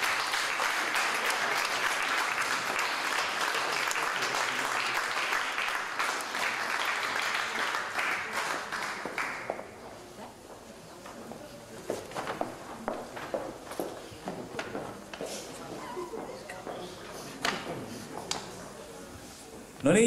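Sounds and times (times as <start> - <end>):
audience applause: 0.0 - 9.8.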